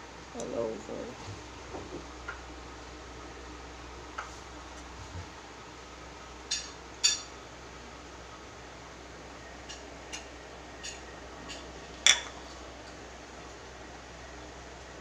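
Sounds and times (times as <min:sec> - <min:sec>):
cookware clinking: 0:12.1 - 0:12.4.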